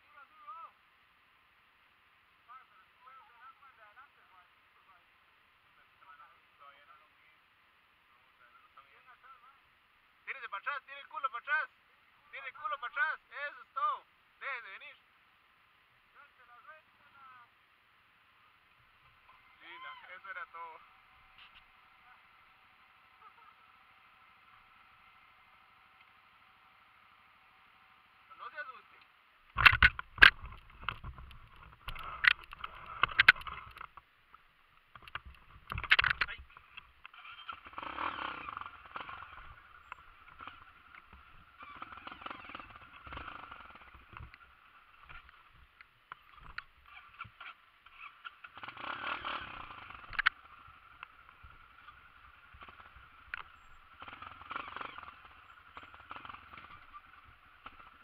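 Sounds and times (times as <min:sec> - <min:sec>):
dirt bike engine running: 0:29.5 - 0:34.0, 0:34.9 - 0:58.0.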